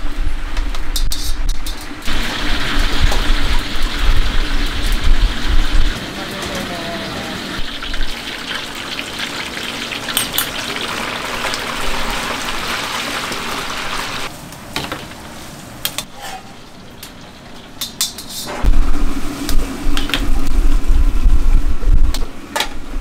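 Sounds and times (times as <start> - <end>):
food sizzling in hot oil: 2.0 - 6.2, 7.4 - 14.3.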